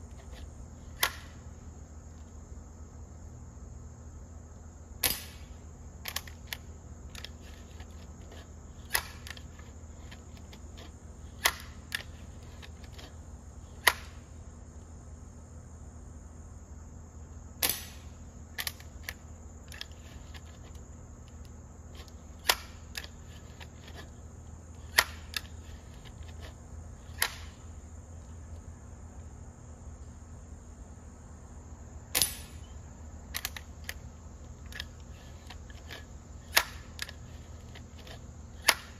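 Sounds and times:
high insect drone: 0.0s - 38.9s
air rifle clicks and snaps: 5.0s - 13.1s, 18.6s - 24.0s, 33.3s - 34.0s, 34.6s - 38.9s.

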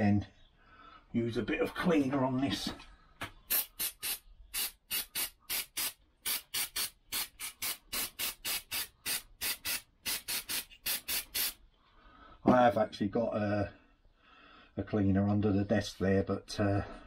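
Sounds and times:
aerosol spray hissing: 3.5s - 11.6s.

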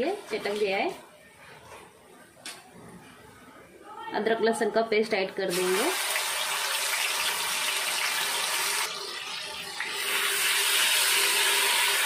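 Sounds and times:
paste sizzling in hot oil: 5.5s - 9.0s.

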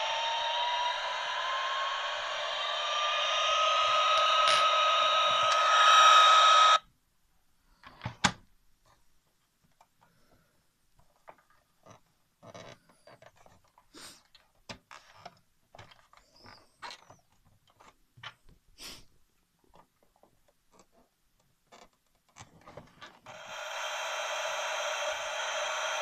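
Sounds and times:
electronic hiss: 0.0s - 6.8s, 23.3s - 26.0s.

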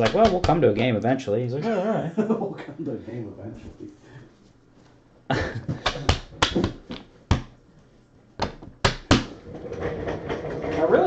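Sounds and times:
cards tapping on a tabletop: 0.0s - 0.8s, 5.7s - 7.6s, 8.4s - 9.3s.

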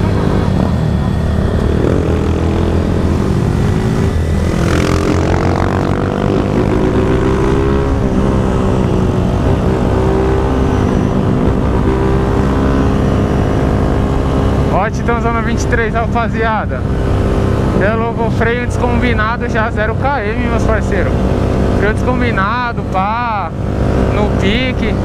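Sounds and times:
motorcycle engine pulling under throttle: 0.0s - 25.0s.

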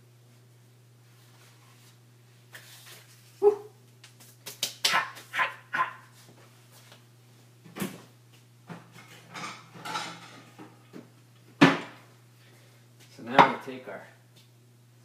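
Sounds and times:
dog barking: 3.4s - 3.7s, 4.9s - 6.1s.

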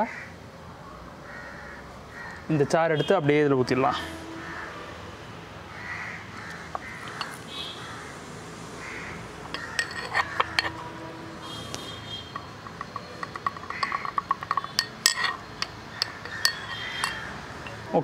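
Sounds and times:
steel cup clinking on blender jar: 9.4s - 10.9s, 12.2s - 17.9s.

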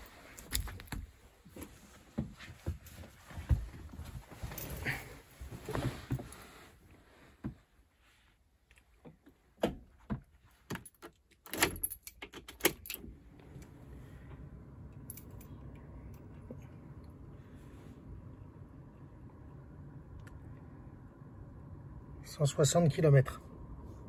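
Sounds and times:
keys jangling: 0.0s - 1.0s, 10.7s - 13.0s
faint steady hum: 0.0s - 24.0s.

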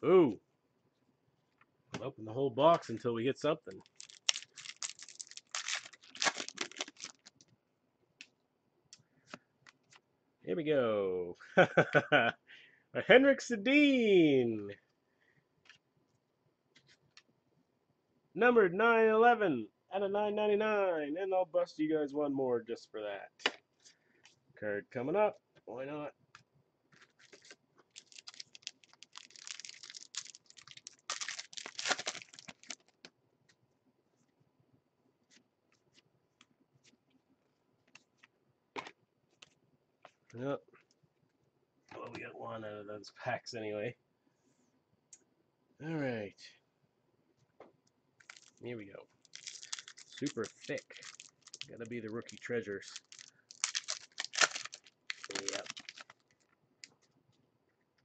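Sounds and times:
wrapper tearing and crinkling: 3.8s - 7.4s, 27.2s - 33.0s, 48.2s - 48.6s, 49.2s - 56.5s.

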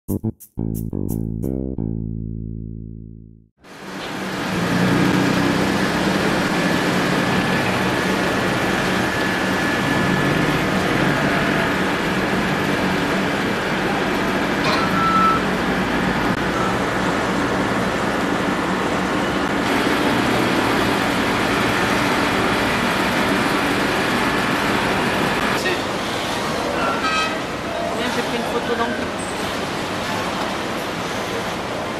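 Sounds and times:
boat engines running: 3.9s - 14.6s, 15.4s - 26.8s.

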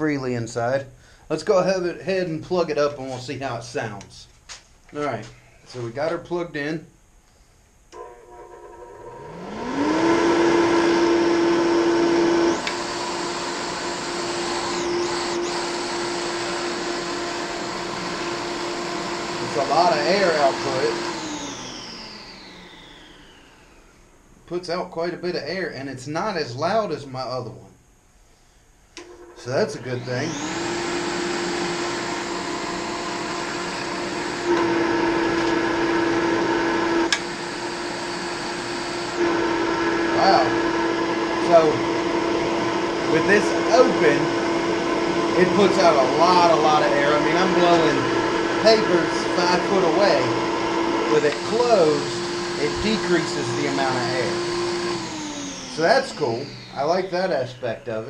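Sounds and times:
forge blower motor hum: 7.9s - 24.7s, 29.0s - 58.0s.

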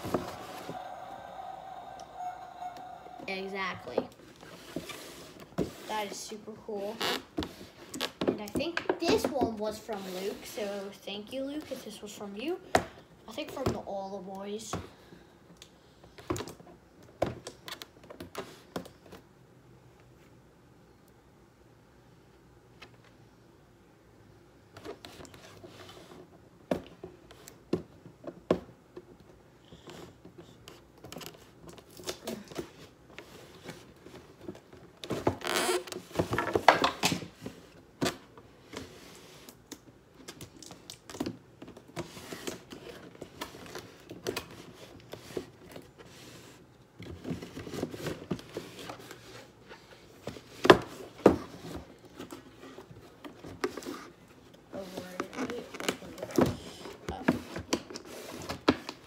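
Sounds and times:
plastic crinkling and rustling: 30.4s - 59.0s.

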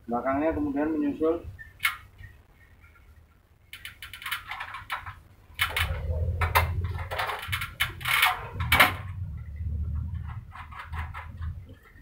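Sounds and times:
metal scraping and knocking: 3.8s - 12.0s.

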